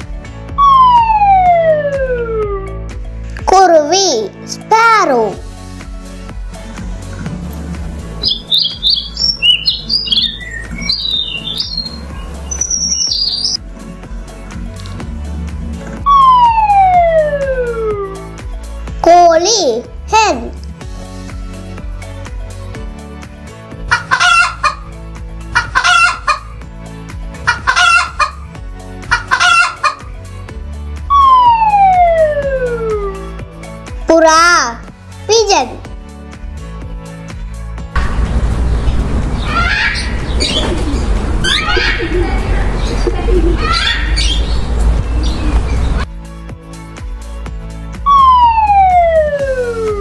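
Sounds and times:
background music: 0.0s - 50.0s
falling whistle sound effect: 0.6s - 2.7s, 16.1s - 18.1s, 31.1s - 33.2s, 48.1s - 50.0s
sparrows chirping: 8.0s - 13.6s, 39.4s - 46.1s
hen cackling: 23.9s - 24.9s, 25.5s - 26.5s, 27.4s - 28.5s, 29.1s - 30.1s, 39.4s - 44.4s.

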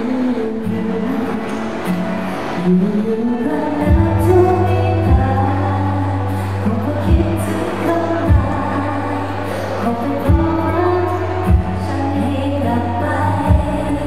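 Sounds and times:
backing music: 0.0s - 14.0s
woman singing pop song: 0.0s - 14.0s
deep bass and drum beat: 3.9s - 5.5s, 8.3s - 8.7s, 10.3s - 10.6s, 11.5s - 11.8s, 13.5s - 13.9s.

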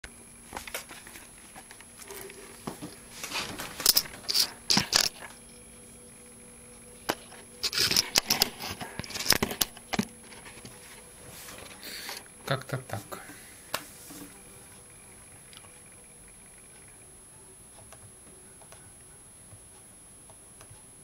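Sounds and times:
rustling and clicking handling noises: 0.5s - 5.4s, 7.1s - 12.2s.

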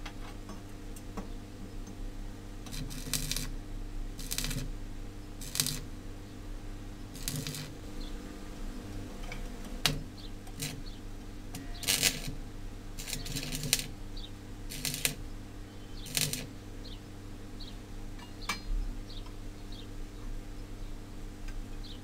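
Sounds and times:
steady low hum: 0.0s - 22.0s
arc welder crackling: 2.6s - 6.2s, 7.0s - 8.2s, 8.9s - 15.3s, 16.0s - 16.6s.

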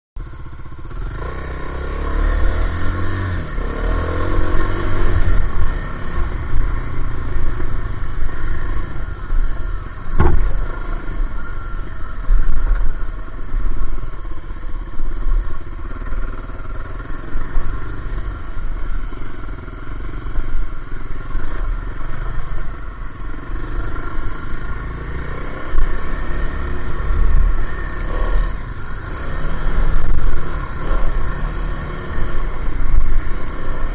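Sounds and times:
dirt bike engine revving: 0.7s - 12.8s, 15.8s - 33.9s
sharp knock: 10.1s - 10.7s.

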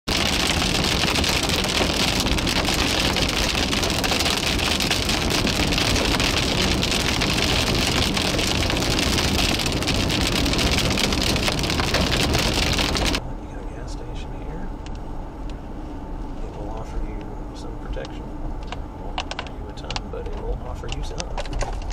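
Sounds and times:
road and tyre noise: 0.0s - 21.9s
rain pattering on car roof: 0.1s - 13.2s, 18.0s - 21.9s.

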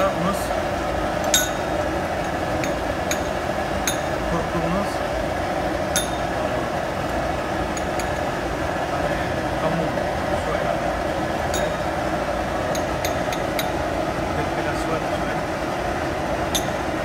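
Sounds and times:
rushing kitchen roar: 0.0s - 17.0s
metal spoons clinking on bowls: 1.3s - 1.7s, 6.0s - 6.3s, 11.5s - 11.9s, 12.7s - 13.8s.

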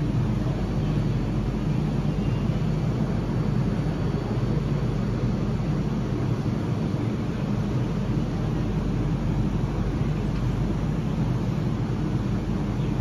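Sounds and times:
train car humming and rumbling: 0.0s - 13.0s.

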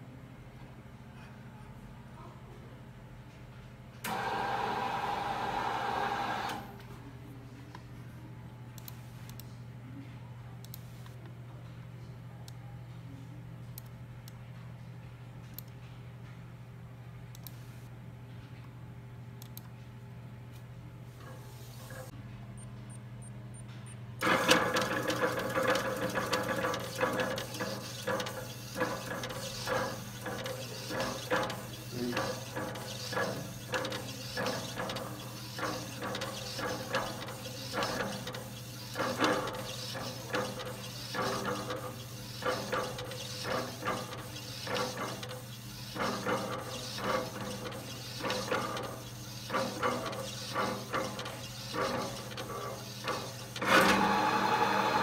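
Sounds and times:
print-head motor whirring: 24.2s - 55.0s.

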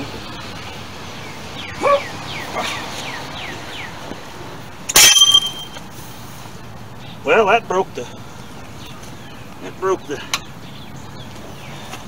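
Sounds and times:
bird chirping: 0.2s - 4.1s
metal bar cracking and ringing: 4.9s - 5.8s.

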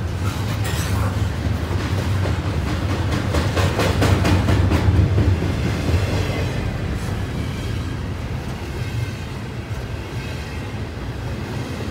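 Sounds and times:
train wheel clacks: 0.0s - 8.8s
freight train low rumble: 0.0s - 11.9s.

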